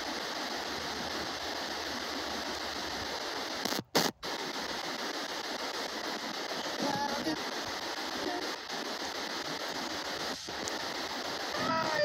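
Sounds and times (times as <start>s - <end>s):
radio static hiss: 0.0s - 12.0s.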